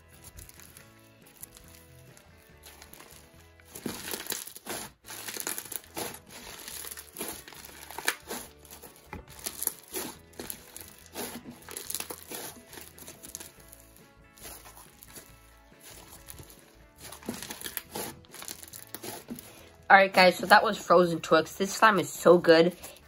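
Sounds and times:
crunchy slime being squeezed: 0:00.0 - 0:19.5.

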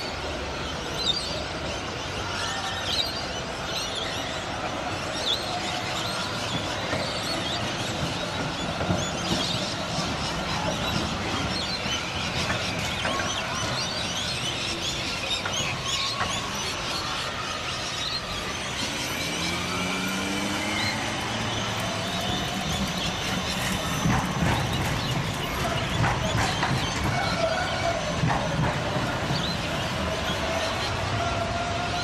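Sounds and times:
birds chirping and whistling: 0:00.0 - 0:32.0
trams and street traffic rumble: 0:00.0 - 0:32.0.

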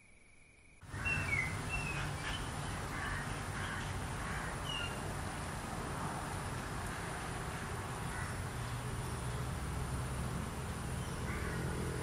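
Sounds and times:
outdoor hiss and rumble: 0:00.0 - 0:12.0
birds chirping: 0:00.8 - 0:05.6, 0:06.3 - 0:12.0
caw-like bird calls: 0:00.9 - 0:05.0, 0:06.8 - 0:08.6, 0:11.3 - 0:11.8.

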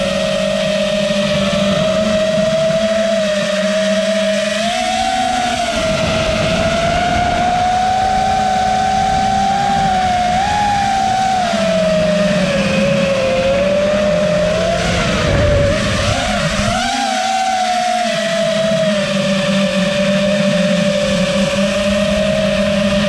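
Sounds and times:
quadcopter motors whining: 0:00.0 - 0:23.0
wind noise: 0:00.0 - 0:23.0.

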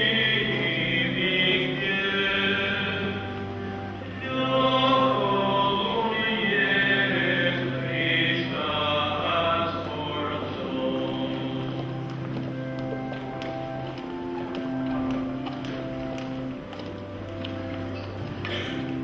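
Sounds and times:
choir singing a hymn: 0:00.0 - 0:12.5
long held low chords: 0:00.0 - 0:19.0.

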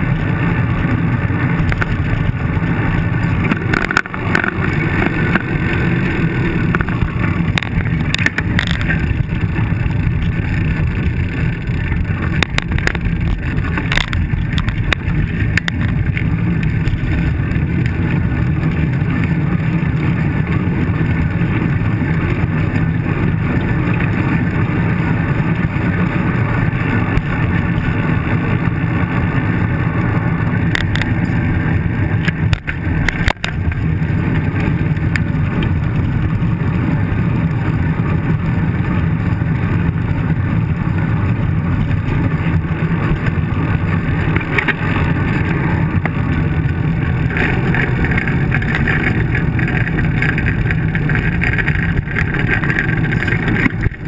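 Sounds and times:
bicycle road rumble: 0:00.0 - 0:54.0
wind rush: 0:00.0 - 0:54.0
bike knocks and rattles: 0:01.5 - 0:24.2, 0:30.6 - 0:36.4, 0:41.6 - 0:54.0.

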